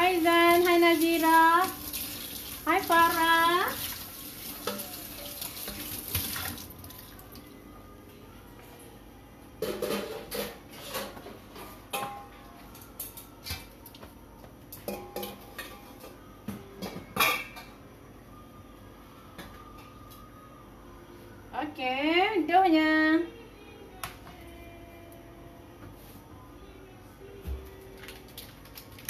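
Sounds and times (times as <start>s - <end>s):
clinks and knocks of kitchenware: 9.6s - 12.4s, 16.8s - 17.8s.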